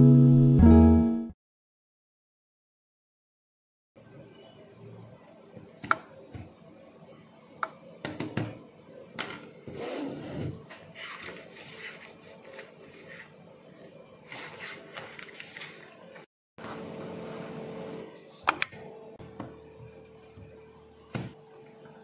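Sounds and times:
paper rustling: 10.7s - 16.2s.

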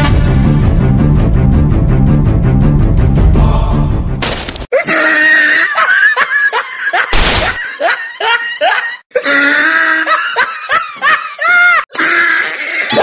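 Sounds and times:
background music: 0.0s - 4.3s
man's high wavering cries: 9.2s - 10.2s.

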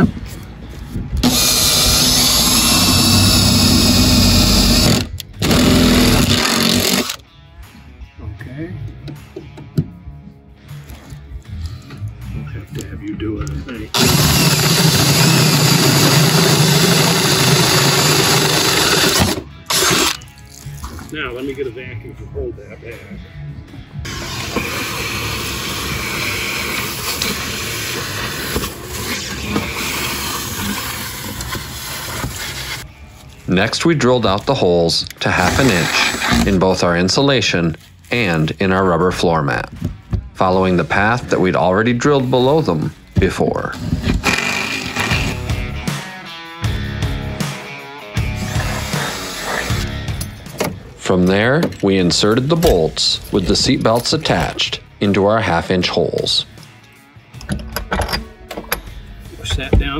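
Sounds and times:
shop vacuum running: 1.2s - 7.1s, 14.0s - 20.2s, 24.0s - 32.8s
electric drill boring into wood: 1.2s - 7.2s, 14.0s - 20.2s, 24.0s - 32.8s, 35.3s - 36.5s, 43.8s - 45.6s, 48.4s - 49.8s.

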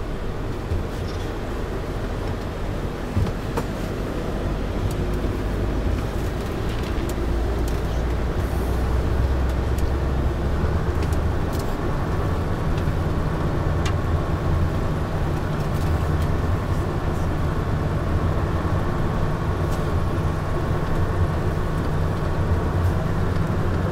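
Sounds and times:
bus engine running under load: 0.0s - 23.9s.

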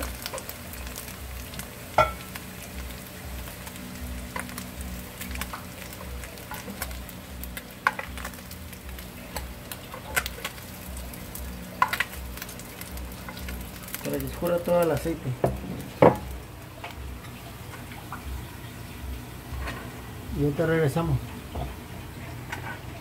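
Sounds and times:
fish sizzling in hot oil: 0.0s - 23.0s
metal tongs clicking on pan: 11.8s - 12.2s.

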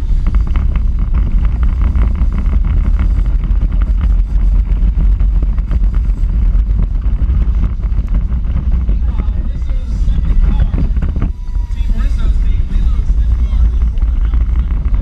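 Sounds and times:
car and camera mount rattling: 0.0s - 15.0s
electric kart low rumble: 0.0s - 15.0s
wind on microphone: 0.0s - 15.0s.

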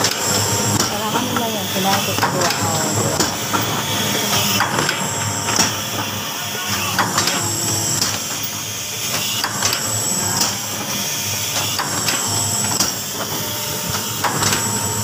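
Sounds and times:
machine mechanism clacking: 0.0s - 10.6s.

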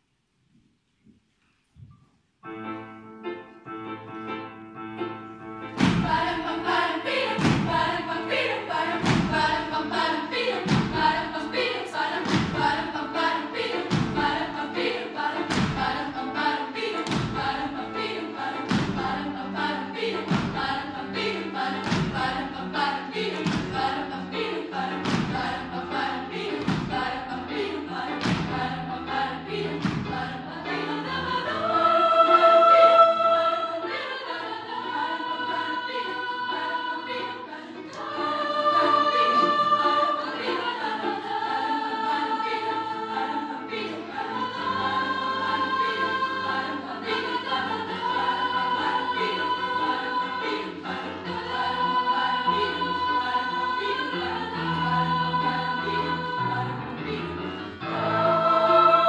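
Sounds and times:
piano accompaniment: 2.4s - 59.0s
children's choir singing: 5.1s - 59.0s
thumping beat: 5.8s - 8.1s, 8.8s - 9.8s, 10.4s - 11.4s, 12.1s - 13.0s, 13.8s - 14.6s, 18.6s - 19.3s, 20.2s - 20.9s, 23.3s - 24.1s, 24.9s - 25.7s, 26.5s - 27.3s, 29.7s - 30.4s.

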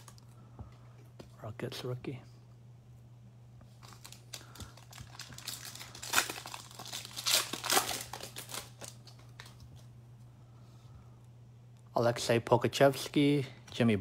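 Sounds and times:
low steady hum: 0.0s - 14.0s
foil wrapper crinkling and tearing: 3.8s - 9.9s.

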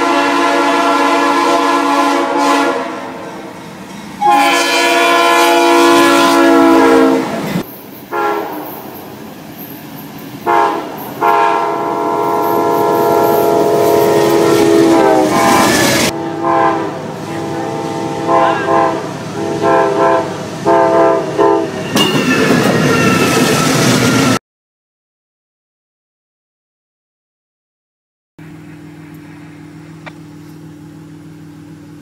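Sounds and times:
locomotive air horn blasts: 0.0s - 3.5s, 4.2s - 8.8s, 10.4s - 21.8s.

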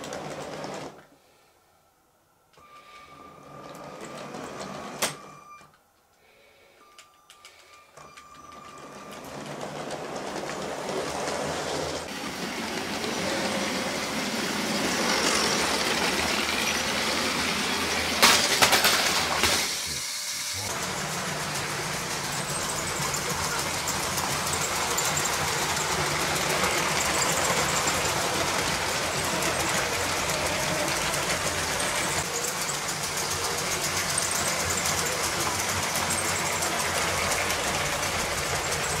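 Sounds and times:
train wheel clatter: 8.1s - 19.7s, 20.7s - 39.0s
toy train motor whir: 8.6s - 39.0s.

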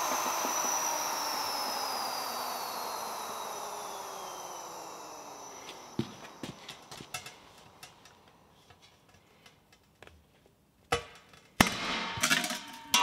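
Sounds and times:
metal clank: 6.9s - 8.2s, 10.9s - 13.0s
metal lid scraping and rattling: 11.6s - 13.0s.

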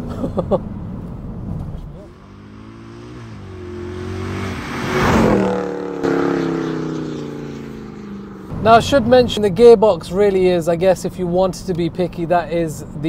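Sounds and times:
tyre and wind noise: 0.0s - 2.2s
car engine accelerating past: 2.1s - 9.2s.

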